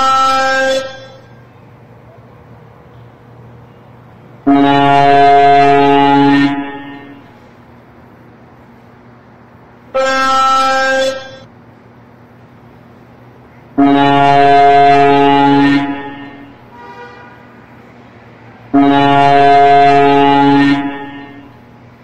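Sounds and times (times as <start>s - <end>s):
truck air horn blasts: 0.0s - 1.4s, 2.9s - 7.5s, 9.9s - 11.5s, 13.8s - 17.9s, 18.7s - 21.8s
low engine and traffic hum: 0.0s - 22.0s
faint short horn toot: 13.8s - 17.6s.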